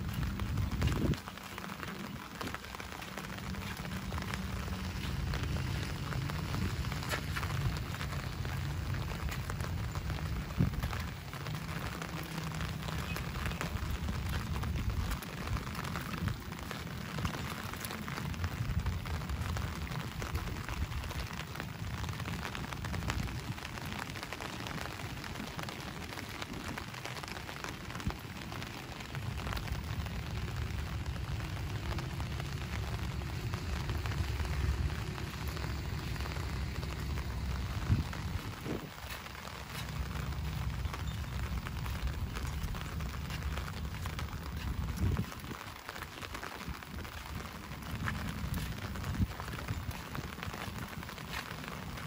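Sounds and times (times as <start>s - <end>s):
low rumble: 0.0s - 24.1s, 28.9s - 45.5s
steady rain falling: 0.0s - 52.0s.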